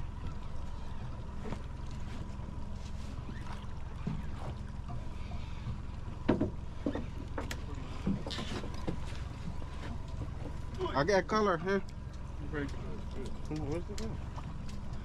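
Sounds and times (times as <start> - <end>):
boat engine running: 0.0 - 15.0
knocks and clatters: 6.2 - 9.1.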